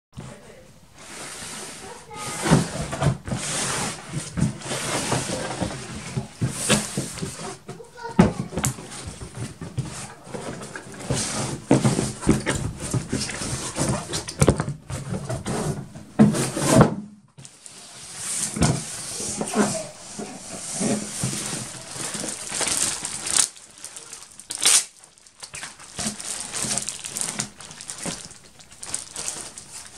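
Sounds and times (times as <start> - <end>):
cardboard scraping and rustling: 1.0 - 29.9.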